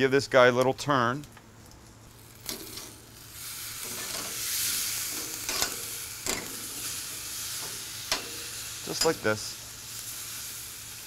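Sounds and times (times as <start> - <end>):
chicken sizzling on grill: 1.9 - 11.0
tongs clicking against grates: 5.1 - 6.9, 7.6 - 9.2.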